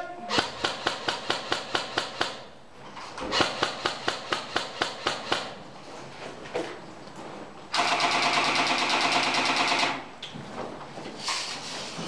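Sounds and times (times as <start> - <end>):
airsoft gun rapid firing: 0.3 - 2.5, 3.3 - 5.6, 7.7 - 10.1.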